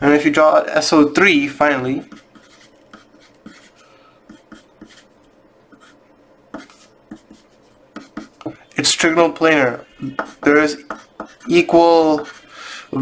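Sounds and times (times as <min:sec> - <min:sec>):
pencil lead tapping: 0:02.0 - 0:03.7, 0:04.3 - 0:05.0, 0:05.7 - 0:08.6, 0:10.0 - 0:12.4
pencil scratching on paper: 0:02.0 - 0:08.6, 0:10.0 - 0:12.5.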